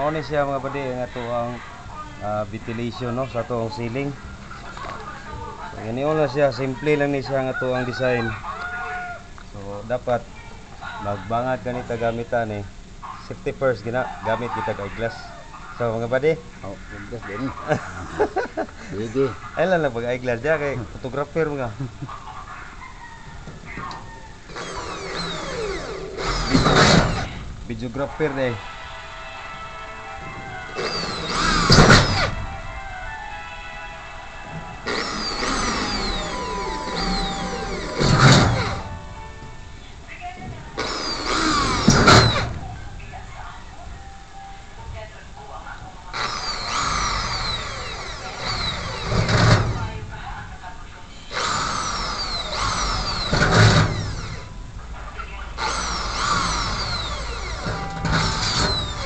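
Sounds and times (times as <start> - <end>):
hand drill whining: 23.8 - 27.4, 30.6 - 32.4, 34.8 - 38.9, 40.8 - 42.6, 46.1 - 50.0, 51.3 - 54.5, 55.6 - 59.0.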